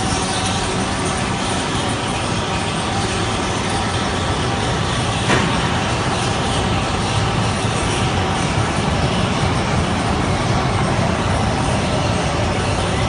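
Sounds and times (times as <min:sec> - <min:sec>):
roller coaster rumbling on track: 0:00.0 - 0:13.0.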